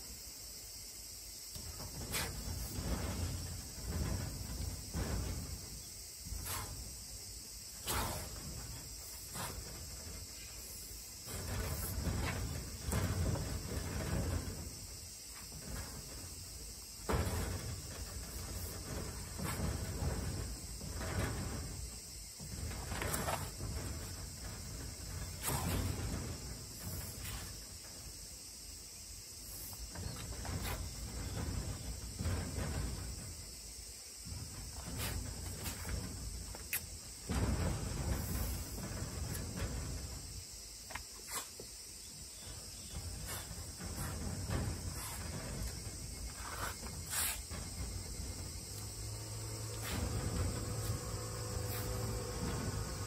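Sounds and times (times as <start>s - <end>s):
high insect chirring: 0.0s - 53.0s
short scraping sounds: 1.7s - 7.0s, 7.7s - 27.7s, 41.1s - 41.7s, 42.4s - 48.9s, 49.6s - 53.0s.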